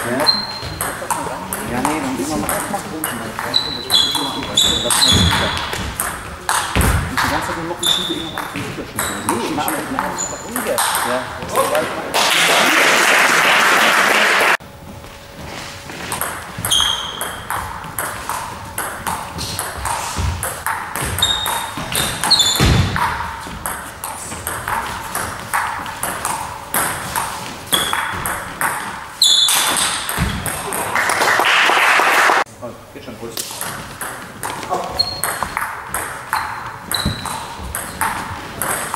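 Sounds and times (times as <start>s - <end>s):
shoe squeaks on floor: 0.0s - 1.0s, 3.4s - 6.0s, 6.8s - 10.6s, 16.6s - 17.6s, 21.0s - 23.0s, 27.7s - 28.2s, 29.2s - 30.4s, 34.7s - 35.6s, 36.3s - 38.2s.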